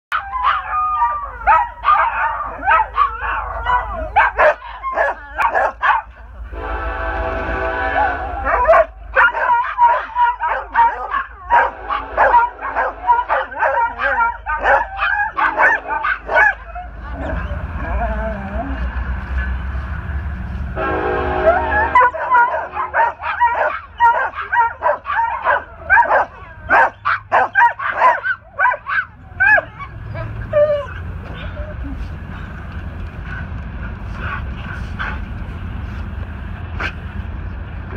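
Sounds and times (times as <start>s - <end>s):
dogs howling and yipping: 0.1s - 6.2s, 8.4s - 19.0s, 21.4s - 31.8s
train horn: 6.4s - 8.6s, 11.5s - 13.3s, 20.7s - 22.4s.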